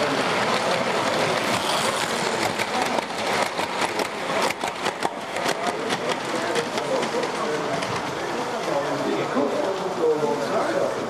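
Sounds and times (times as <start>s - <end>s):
model train wheels rattling on track: 0.0s - 11.0s.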